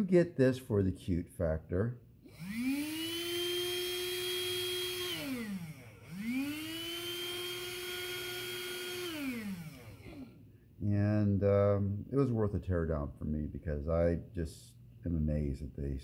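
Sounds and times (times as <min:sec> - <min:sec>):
small motor and fan whine: 0:02.2 - 0:10.5.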